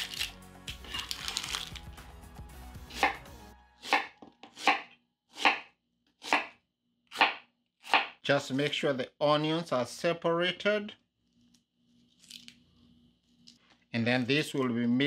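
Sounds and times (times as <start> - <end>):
knife slicing onion: 2.8 - 8.2.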